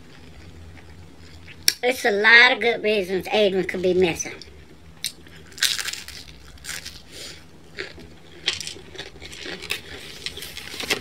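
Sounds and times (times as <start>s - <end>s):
crunchy pizza chewing: 0.0s - 1.7s, 5.0s - 11.0s.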